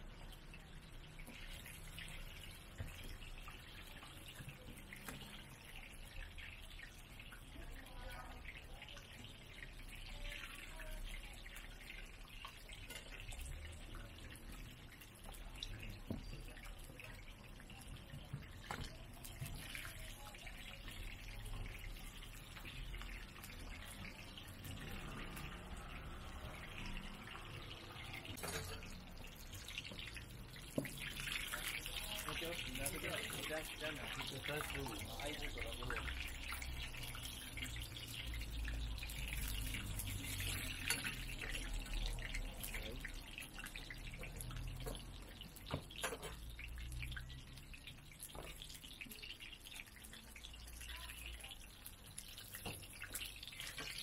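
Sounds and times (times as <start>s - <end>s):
oil sizzling and bubbling: 0.0s - 54.0s.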